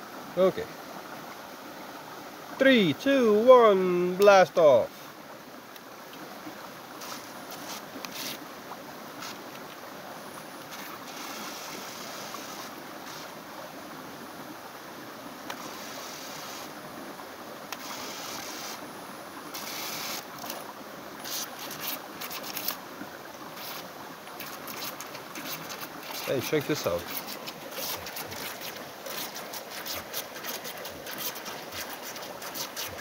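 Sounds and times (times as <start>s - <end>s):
river water rushing: 0.0s - 33.0s
toy boat propellers whirring: 7.0s - 8.4s, 10.7s - 13.4s, 15.5s - 16.7s, 17.7s - 18.8s, 19.5s - 22.8s, 23.5s - 33.0s.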